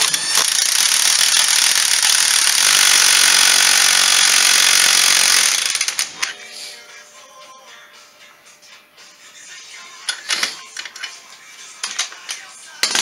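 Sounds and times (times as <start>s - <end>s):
impact wrench hammering: 0.0s - 6.2s.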